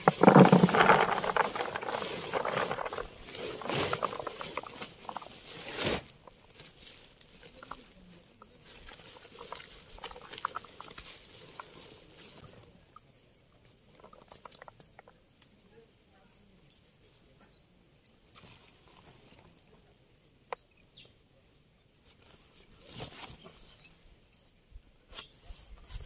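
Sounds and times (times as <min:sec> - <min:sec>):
small rustles: 0:00.0 - 0:12.8, 0:22.0 - 0:24.4.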